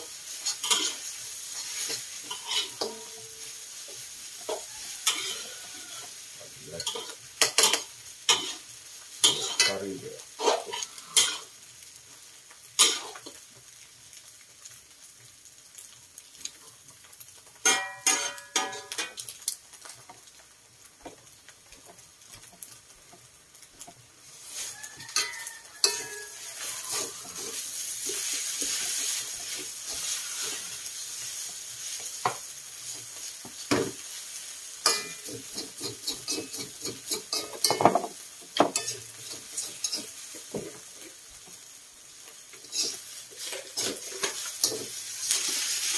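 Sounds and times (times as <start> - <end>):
metal utensils scraping woks: 0.0 - 11.6, 17.7 - 19.2, 24.2 - 38.1, 38.7 - 41.2, 42.5 - 45.9
frying sizzle: 0.0 - 45.9.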